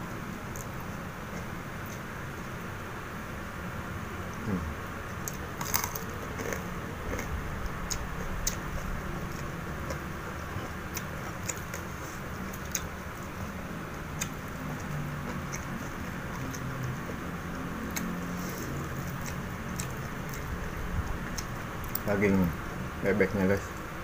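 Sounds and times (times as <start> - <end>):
man chewing: 4.2 - 22.1.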